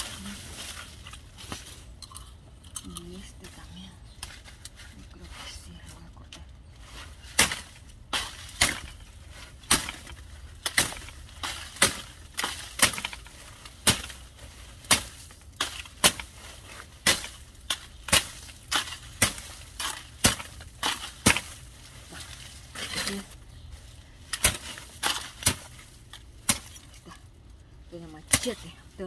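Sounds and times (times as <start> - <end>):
machete chopping plant stalk: 7.2 - 23.3, 24.3 - 26.9, 28.2 - 28.7.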